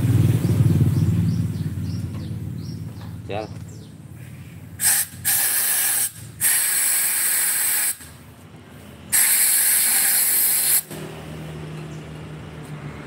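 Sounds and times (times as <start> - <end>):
air blow gun hissing: 4.8 - 8.2, 9.1 - 11.0.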